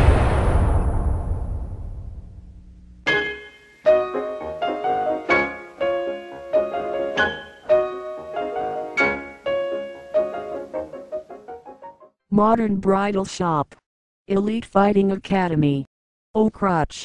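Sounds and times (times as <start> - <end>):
solo piano music: 3.0 - 12.1.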